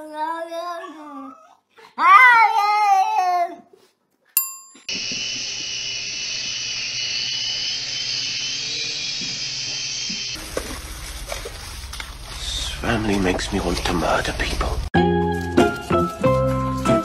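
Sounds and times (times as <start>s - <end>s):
bell-like ding: 4.4s - 4.9s
toy motor whine: 4.9s - 10.4s.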